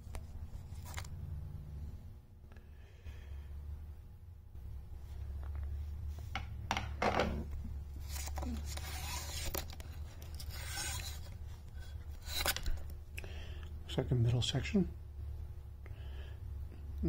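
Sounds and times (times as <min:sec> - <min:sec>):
steady low hum: 0:00.0 - 0:17.0
packaging rustling and tearing: 0:08.0 - 0:11.4.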